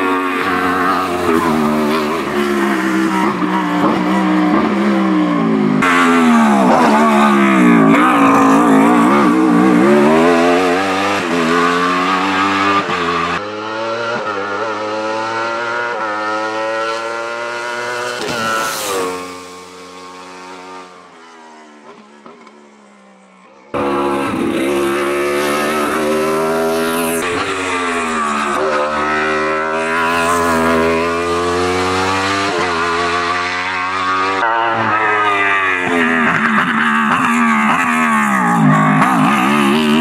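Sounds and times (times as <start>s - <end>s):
motorcycle engine revving hard: 0.0s - 21.2s, 23.7s - 40.0s.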